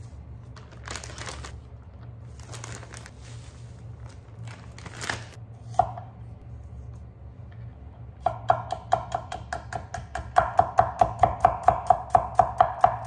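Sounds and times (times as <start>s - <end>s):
steady low hum: 0.0s - 13.0s
plastic bags crinkling: 0.4s - 5.4s.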